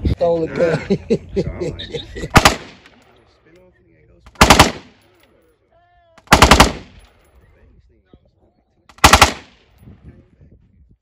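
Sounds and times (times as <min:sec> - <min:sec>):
rifle firing bursts: 0:02.3 - 0:03.0, 0:04.3 - 0:05.0, 0:06.2 - 0:07.1, 0:08.9 - 0:09.7
gunshot echo: 0:02.4 - 0:03.0.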